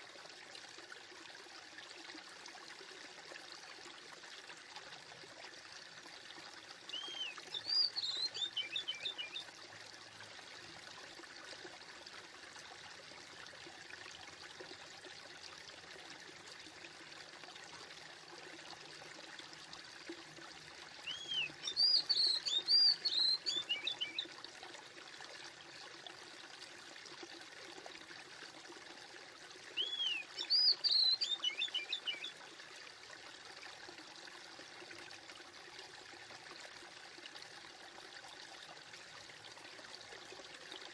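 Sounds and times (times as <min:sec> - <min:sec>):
flowing water: 0:00.0 - 0:40.9
songbird chirping: 0:06.9 - 0:09.5, 0:21.1 - 0:24.3, 0:29.8 - 0:32.3.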